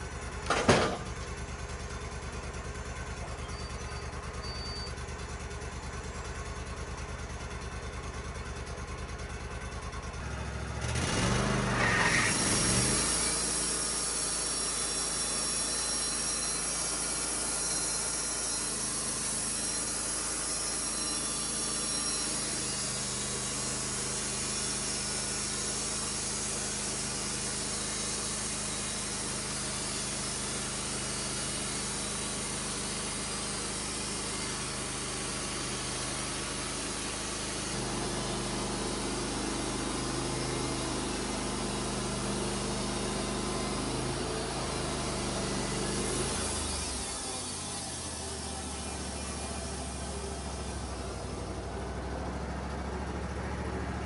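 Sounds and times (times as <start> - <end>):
band sawmill cutting log: 0.0 - 7.5, 8.1 - 54.0.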